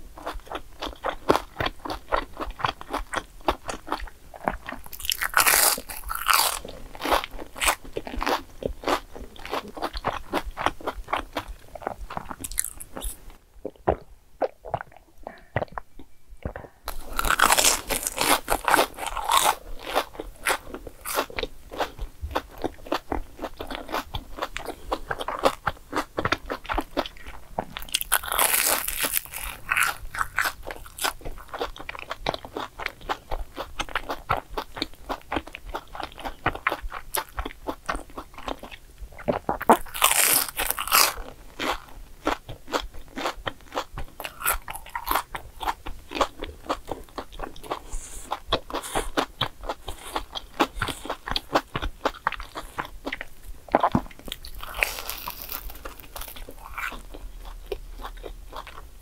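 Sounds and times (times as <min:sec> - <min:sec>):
crunching of fried food: 0:00.1 - 0:14.0, 0:16.5 - 0:59.0.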